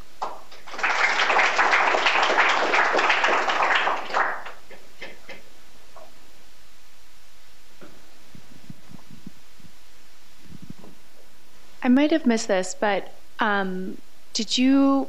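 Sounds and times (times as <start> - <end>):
audience applauding: 0.5 - 5.2.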